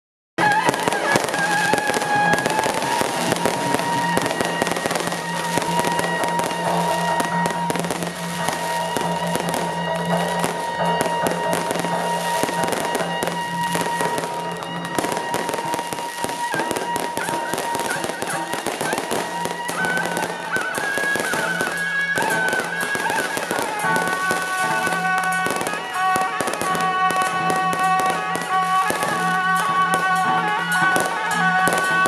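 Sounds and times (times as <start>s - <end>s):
firecrackers crackling: 0.4s - 32.0s
procession music held tones: 0.4s - 32.0s.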